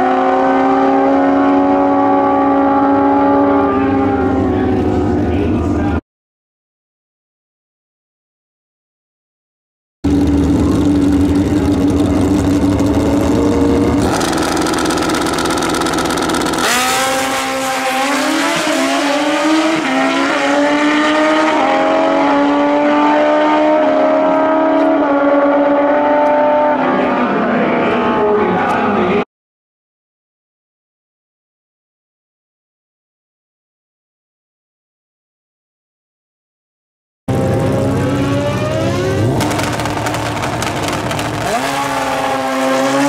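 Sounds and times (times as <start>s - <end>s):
motorcycle engines revving: 0.0s - 6.0s, 10.0s - 29.2s, 37.3s - 43.0s.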